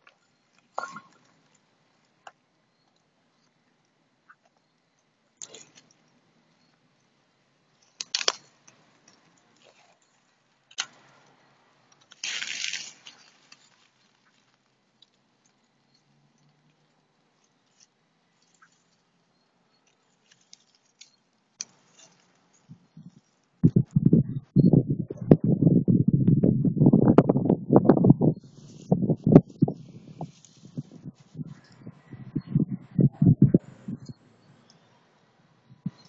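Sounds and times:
dry grass and twigs rustling: 7.7s - 11.1s, 12.0s - 15.6s, 16.3s - 23.9s, 27.0s - 33.0s.

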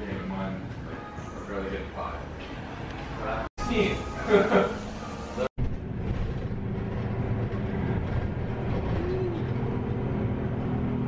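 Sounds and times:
low rumble of moving bus: 4.0s - 11.0s.

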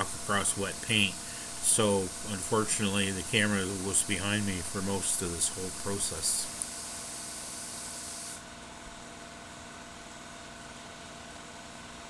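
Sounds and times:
paint spray gun hissing: 0.0s - 8.4s
steady hum: 0.0s - 12.0s.

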